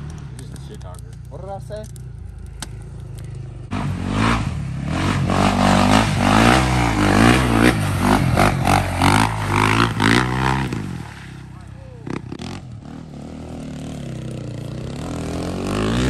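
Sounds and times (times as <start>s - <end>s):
quad engine revving: 3.0s - 16.0s
mud and water splashing: 6.3s - 12.1s.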